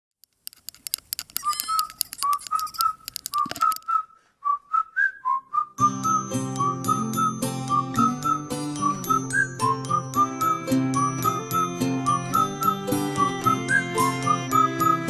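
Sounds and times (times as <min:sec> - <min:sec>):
sharp clicks: 0:00.2 - 0:03.9
whistled tune: 0:01.4 - 0:15.0
pop band playing: 0:05.8 - 0:15.0.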